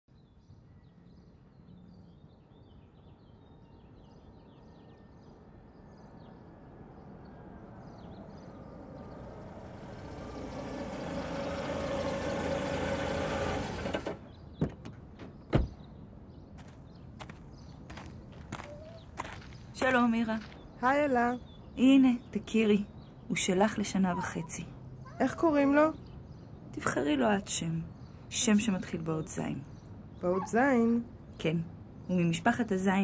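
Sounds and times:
vehicle approaching: 6.6 - 14.4
faint bird chirps: 17.6 - 19.8.

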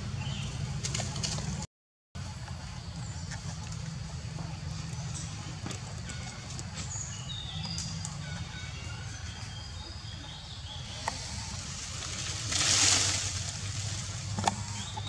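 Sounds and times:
birds chirping: 0.0 - 1.6, 2.2 - 15.0
rustle of leaves and branches: 11.0 - 15.0.

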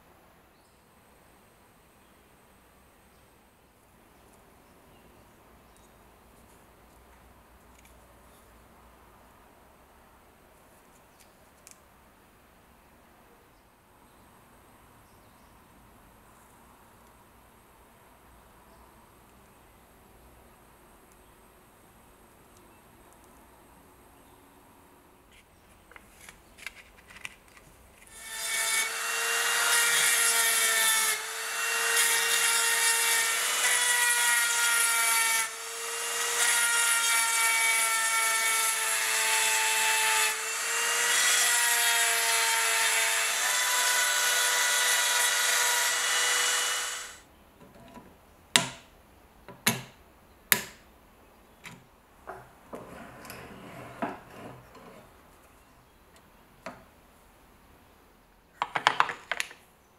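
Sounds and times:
rotary tool grinding steel: 28.1 - 47.2
light scraping: 52.8 - 55.2.

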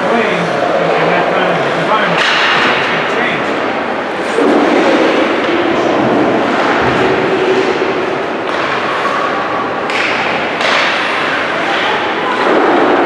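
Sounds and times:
hockey sticks clacking: 1.9 - 3.7, 6.4 - 12.9.

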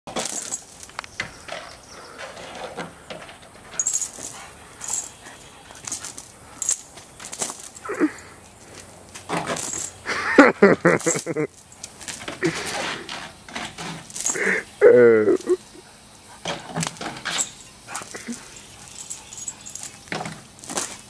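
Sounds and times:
metal chain jingling: 0.1 - 1.0, 3.8 - 8.9, 9.5 - 10.0, 10.8 - 13.0, 14.0 - 14.6, 15.2 - 21.0.

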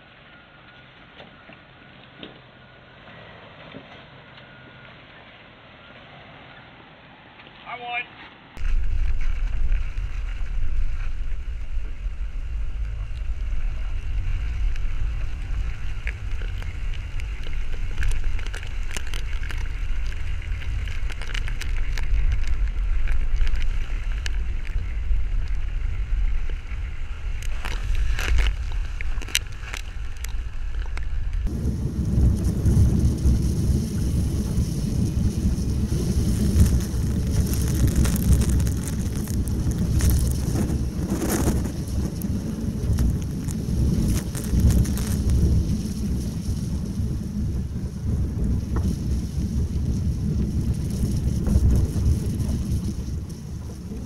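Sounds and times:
vehicle engine rumble: 8.4 - 54.0
wind on microphone: 8.6 - 54.0.

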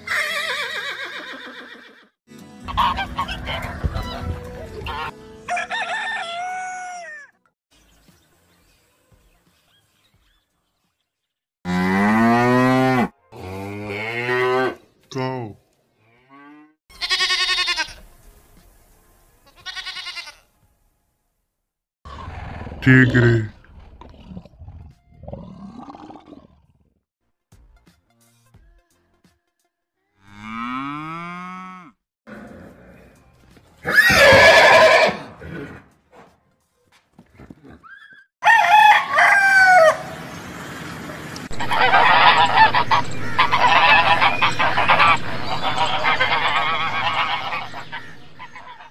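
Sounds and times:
horse neighing: 0.0 - 2.1, 33.8 - 35.8
cow mooing: 11.7 - 14.8, 30.2 - 32.8.

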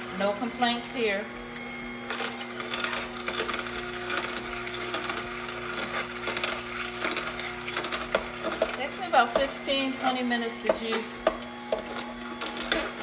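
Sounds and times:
juicer motor hum: 0.0 - 13.0
celery crackling and snapping: 2.0 - 9.0, 11.4 - 13.0.

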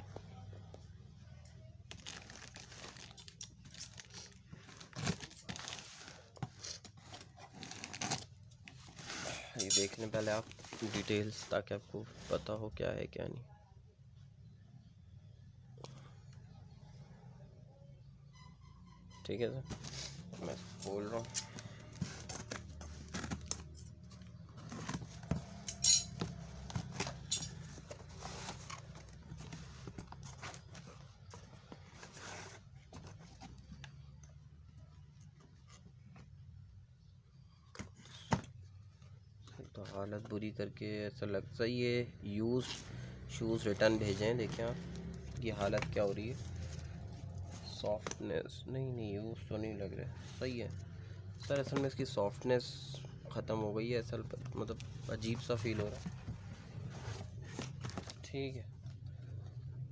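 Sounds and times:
cardboard rustling and scraping: 3.7 - 12.5, 19.6 - 33.9, 54.5 - 58.3.

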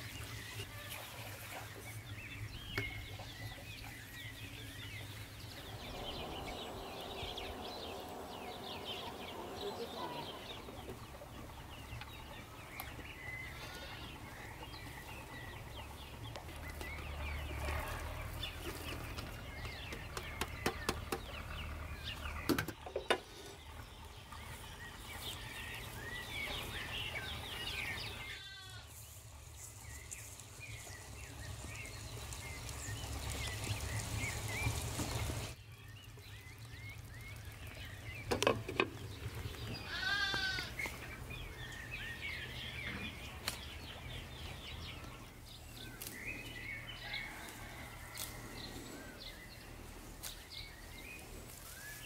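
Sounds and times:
small birds chirping: 0.0 - 52.0
goats bleating: 13.5 - 14.2, 28.2 - 29.0, 39.8 - 40.9.

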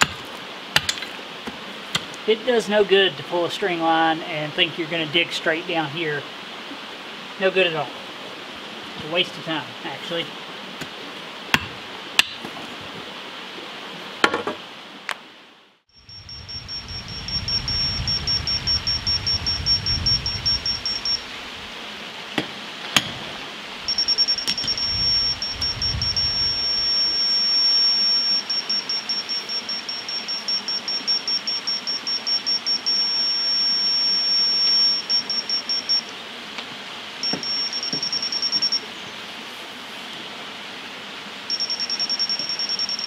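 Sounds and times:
laser receiver beeping: 16.0 - 21.3, 23.9 - 36.1, 37.2 - 38.8, 41.5 - 43.0.

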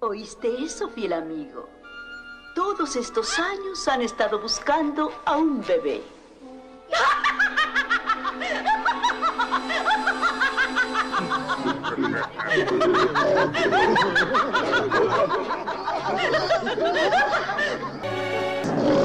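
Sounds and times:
music: 0.0 - 19.0
cartoon voices laughing: 6.9 - 18.0.

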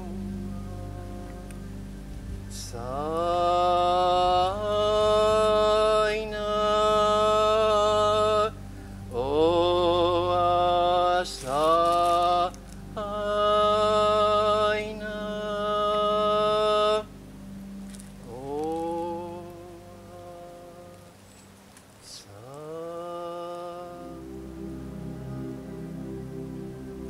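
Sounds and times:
solo voice chanting: 0.0 - 1.8, 2.5 - 17.1, 18.2 - 21.2, 22.0 - 26.3
steady low drone: 0.0 - 27.0.

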